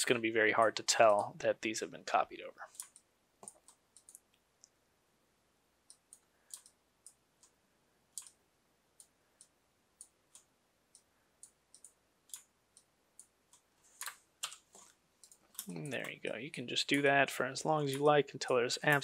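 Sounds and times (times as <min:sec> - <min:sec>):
computer mouse and keyboard clicking: 0:02.7 - 0:04.4, 0:05.9 - 0:07.6, 0:08.2 - 0:08.4, 0:09.0 - 0:16.2.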